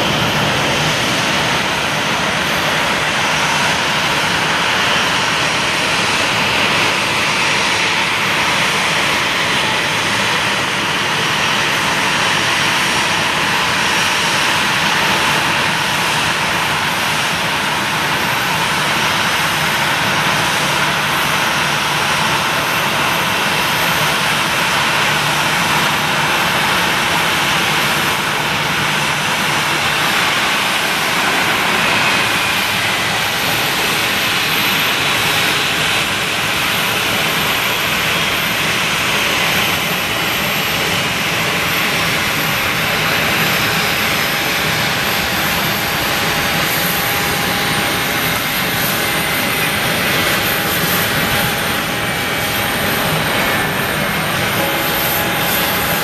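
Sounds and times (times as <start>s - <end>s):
jet engines rushing hiss: 0.0s - 56.0s.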